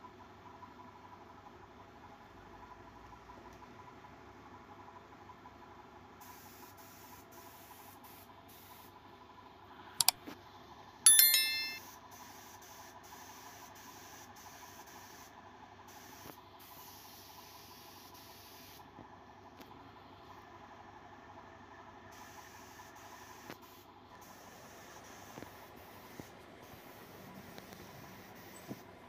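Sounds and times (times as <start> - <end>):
metallic ding: 11.1 - 11.8.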